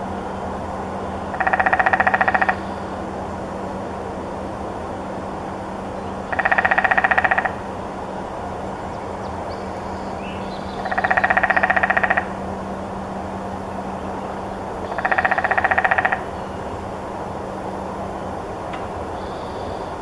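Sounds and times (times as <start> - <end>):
steady background hum: 0.0 - 20.0
woodpecker drumming on branch: 1.3 - 2.7, 6.3 - 7.6, 10.8 - 12.4, 14.8 - 16.3.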